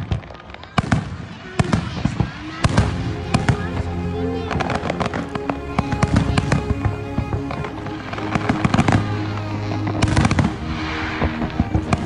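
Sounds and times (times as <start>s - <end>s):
fireworks crackling and banging: 0.0s - 12.0s
music playing: 2.6s - 12.0s.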